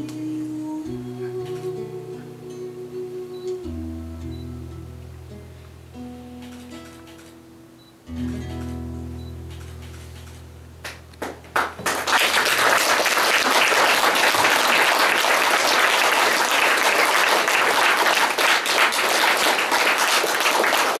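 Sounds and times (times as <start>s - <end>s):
acoustic guitar chord: 0.0s - 6.8s, 7.4s - 11.8s
audience applauding: 10.8s - 21.0s.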